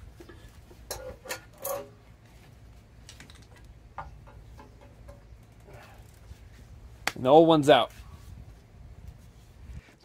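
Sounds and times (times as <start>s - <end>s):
metal parts clunking: 0.3s - 2.0s.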